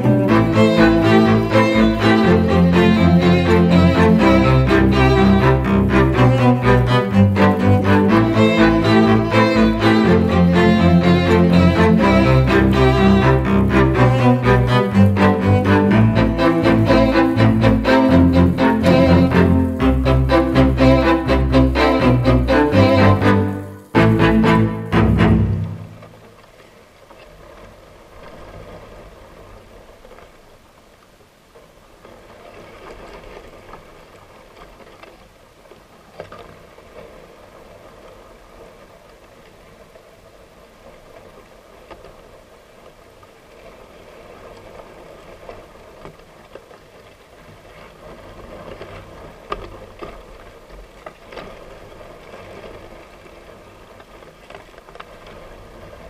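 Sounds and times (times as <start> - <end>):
faint steady hiss: 0.0 - 56.0.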